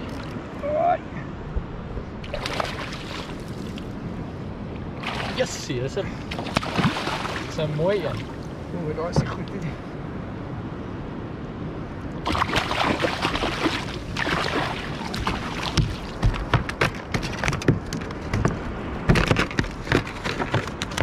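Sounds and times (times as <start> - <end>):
fish splashing at surface: 2.3 - 3.8, 5.0 - 5.4, 6.3 - 7.5, 12.3 - 16.2
heavy knocks: 15.7 - 20.8.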